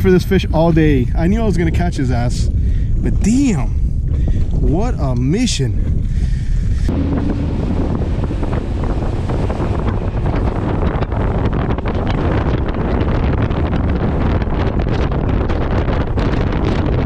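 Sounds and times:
wind buffeting microphone: 0.0 - 17.0
water rushing from boat: 6.9 - 17.0.

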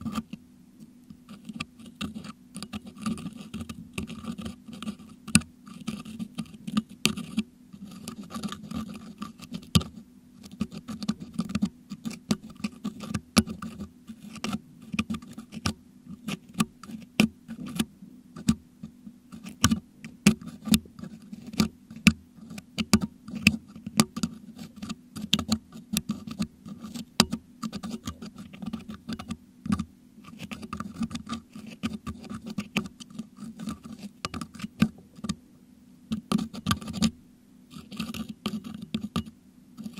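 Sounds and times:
sharp clicks and scratches: 0.0 - 35.4, 36.1 - 39.9
metal hook scraping microphone grille: 36.1 - 39.9.

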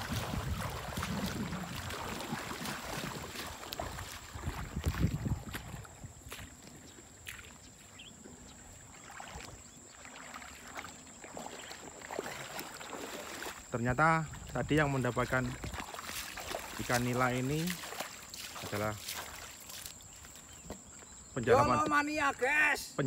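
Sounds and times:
wind rumble on microphone: 0.0 - 7.0, 13.6 - 17.0
river water flowing: 0.0 - 21.0.

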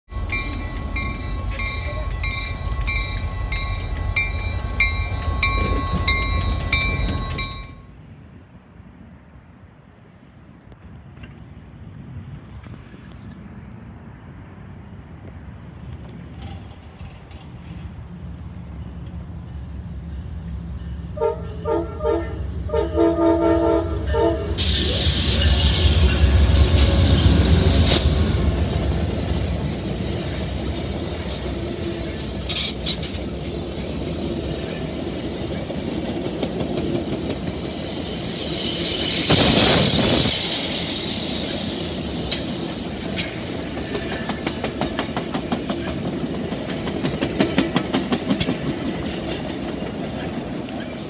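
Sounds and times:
train passing rush: 0.0 - 51.0
locomotive engine rumble: 0.1 - 8.6, 15.0 - 51.0
bell ringing: 0.2 - 7.9
locomotive air horn blasts: 21.1 - 26.0.

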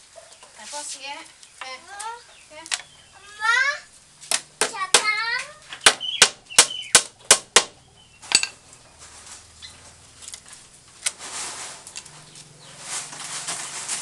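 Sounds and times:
hammer tapping on bamboo: 4.3 - 7.8.

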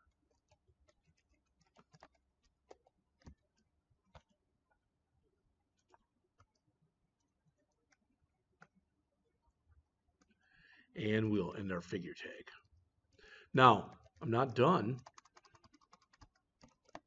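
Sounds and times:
computer keyboard typing: 0.0 - 4.3, 13.8 - 17.0.

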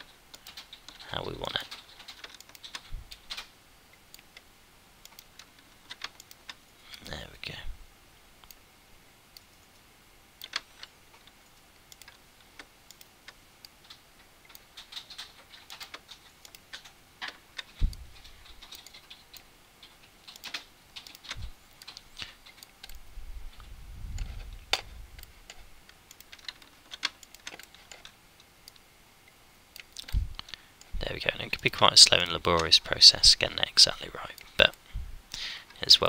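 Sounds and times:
keyboard and mouse clicking: 0.0 - 7.1, 10.4 - 23.1, 24.1 - 28.9, 29.7 - 30.9.

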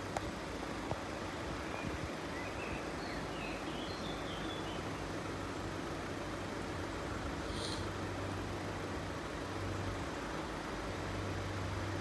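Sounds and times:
outdoor background hiss: 0.0 - 12.0
faint bird chirps: 1.6 - 5.0, 7.1 - 8.0.

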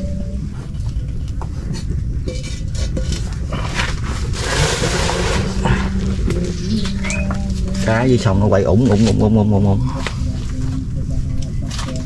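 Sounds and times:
low rumble: 0.0 - 12.0
pots and utensils scraping: 1.6 - 10.2.

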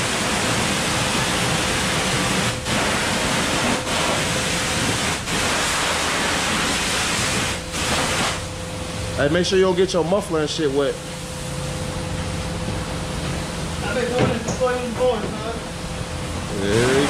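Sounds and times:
pressure washer water jet: 0.0 - 8.5, 16.5 - 17.0.

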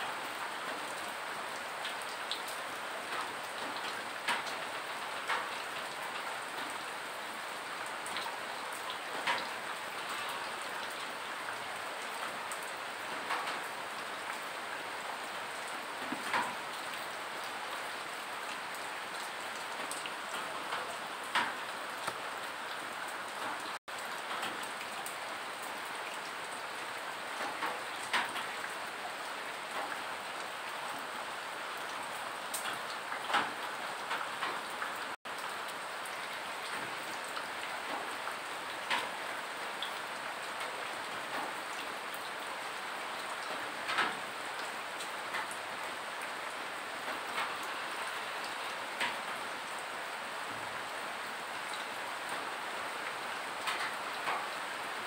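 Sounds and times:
steady rain hiss: 0.0 - 55.0.

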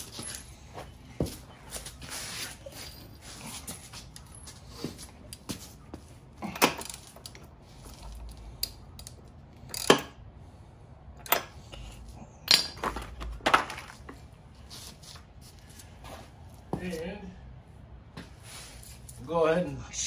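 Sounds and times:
wrench clinking on metal: 6.5 - 10.2.

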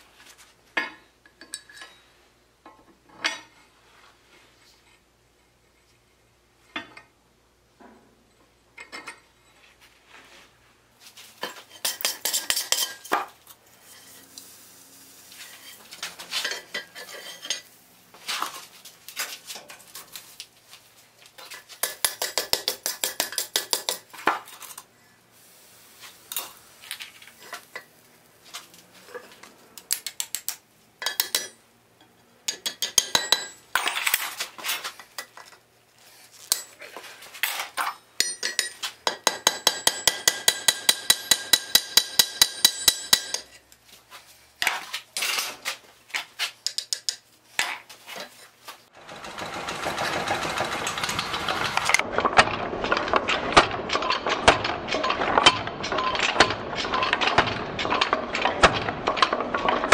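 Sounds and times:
hammer ringing on anvil: 39.4 - 43.5.

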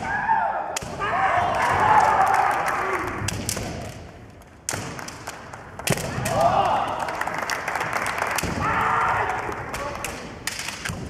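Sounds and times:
fencers shouting: 8.4 - 10.2.

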